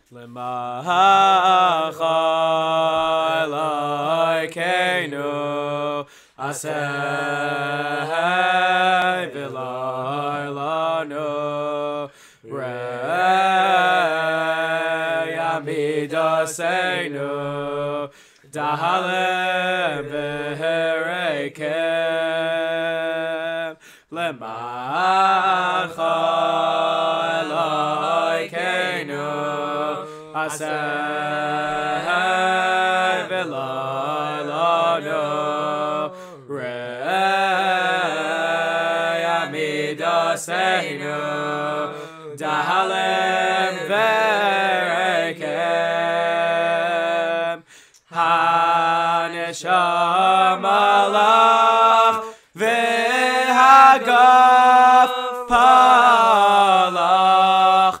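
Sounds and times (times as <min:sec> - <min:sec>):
men singing a cappella: 0:00.0 - 0:58.0.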